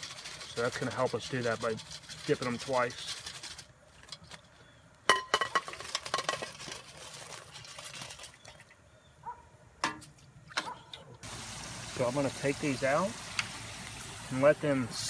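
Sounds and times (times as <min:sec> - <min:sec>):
metal basket clanking on pot: 0:05.1 - 0:06.9.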